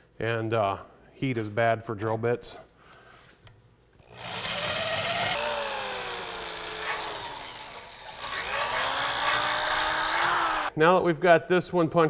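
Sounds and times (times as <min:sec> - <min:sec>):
drill boring through steel: 0:04.1 - 0:10.7.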